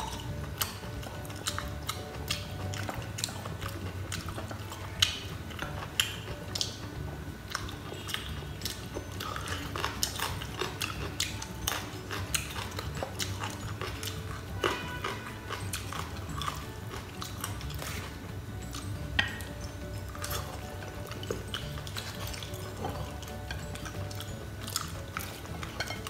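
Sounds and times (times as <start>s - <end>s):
close chewing: 0.0s - 26.0s
rice crackers crunching: 7.6s - 26.0s.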